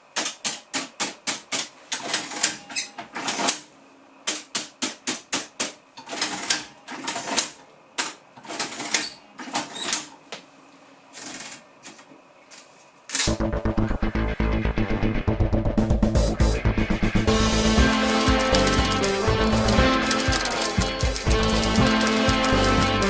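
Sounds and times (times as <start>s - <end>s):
adding machine clacking: 17.3s - 23.0s.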